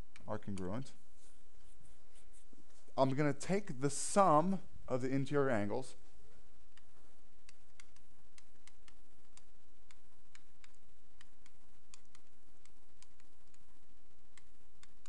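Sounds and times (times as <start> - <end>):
steady low hum: 0.0 - 15.0
stylus clicking on pen tablet: 6.6 - 15.0.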